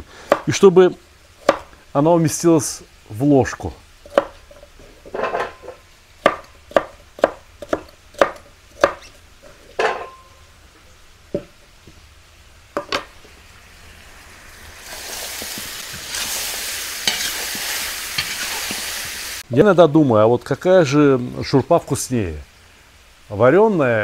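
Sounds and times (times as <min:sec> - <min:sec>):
meat and onions sizzling: 0:00.0 - 0:23.3
knife chopping on wooden board: 0:04.1 - 0:04.3, 0:06.2 - 0:09.0
spatula stirring: 0:14.9 - 0:19.7.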